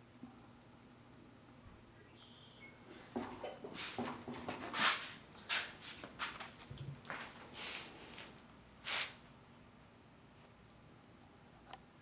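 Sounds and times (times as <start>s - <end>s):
rustling and scuffing noises: 2.9s - 9.3s.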